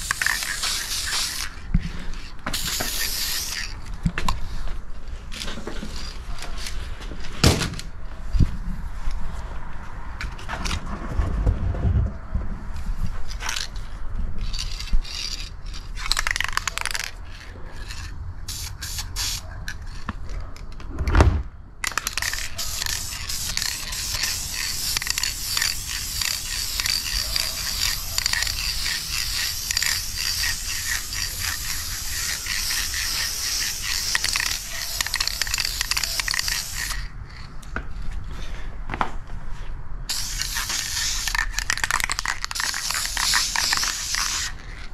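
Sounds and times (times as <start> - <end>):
aerosol spray can hissing: 0.0 - 1.6, 2.5 - 3.7, 18.5 - 19.4, 22.1 - 37.1, 40.1 - 44.6.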